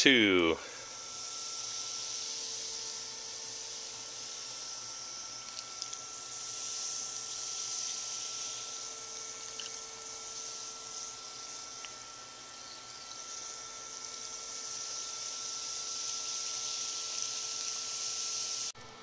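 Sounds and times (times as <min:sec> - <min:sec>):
small clicks: 0:05.4 - 0:06.0, 0:09.4 - 0:09.8.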